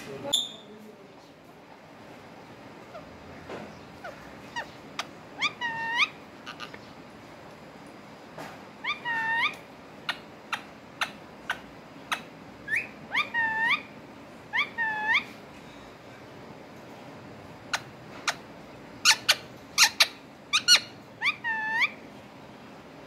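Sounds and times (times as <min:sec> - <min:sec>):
parakeet chirping and squawking: 0:02.7 - 0:07.0, 0:08.8 - 0:15.4, 0:17.6 - 0:22.1.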